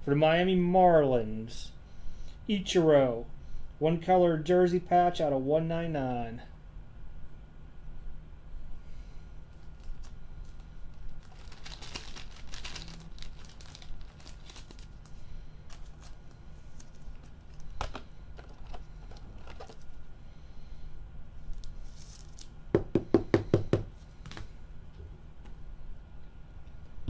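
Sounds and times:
cards and plastic cases rustling: 0:09.5 - 0:20.0, 0:21.5 - 0:22.5.

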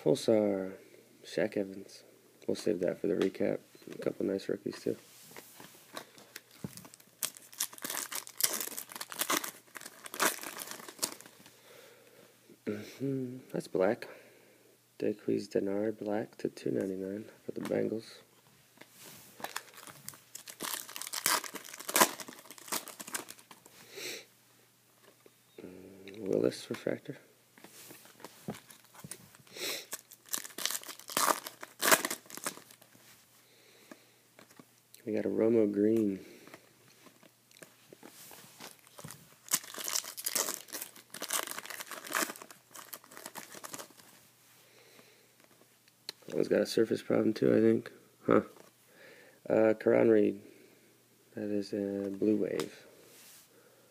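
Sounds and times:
plastic wrapper crinkling and tearing: 0:06.0 - 0:11.4, 0:19.4 - 0:23.7, 0:28.1 - 0:29.2, 0:29.8 - 0:33.0, 0:37.0 - 0:44.1.

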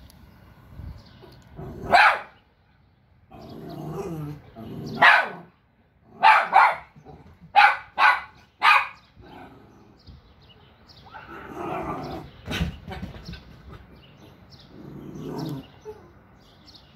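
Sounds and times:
dog barking: 0:01.8 - 0:02.4, 0:05.0 - 0:05.5, 0:06.2 - 0:09.0.

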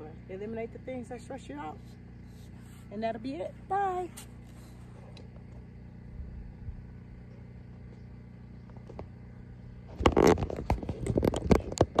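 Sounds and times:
handling noise on microphone: 0:09.8 - 0:12.0.

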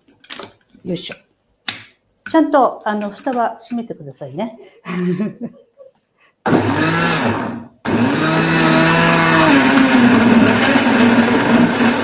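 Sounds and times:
blender motor running: 0:06.5 - 0:12.0.

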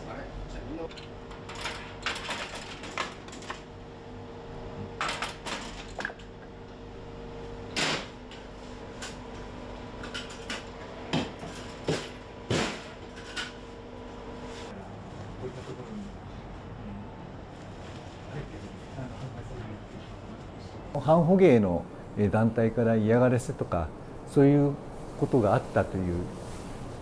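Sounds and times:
steady machine hum: 0:00.0 - 0:27.0.

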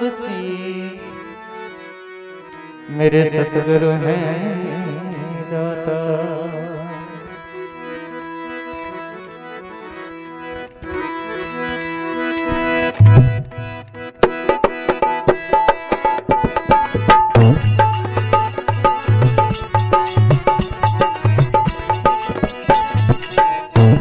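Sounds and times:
harmonium melody: 0:00.0 - 0:24.0
hand drum rhythm: 0:13.0 - 0:13.6, 0:14.2 - 0:24.0.

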